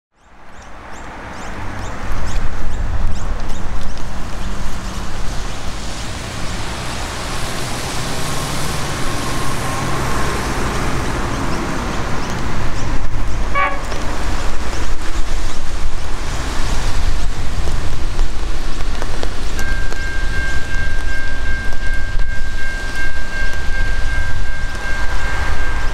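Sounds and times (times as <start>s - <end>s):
road traffic noise: 0.1s - 25.9s
two-tone electronic warning signal: 13.5s - 14.0s, 19.6s - 25.9s.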